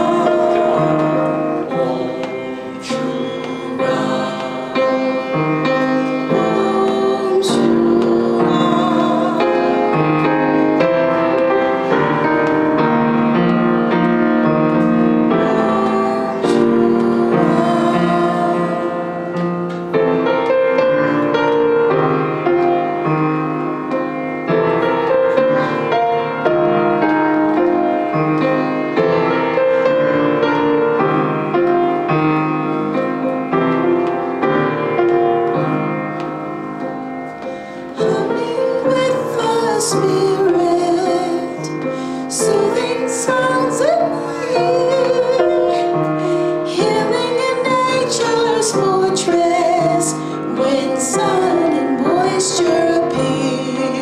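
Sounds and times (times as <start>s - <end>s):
woman singing held tones: 0.0s - 12.9s, 15.2s - 19.6s, 37.8s - 54.0s
grand piano playing chords: 0.0s - 54.0s.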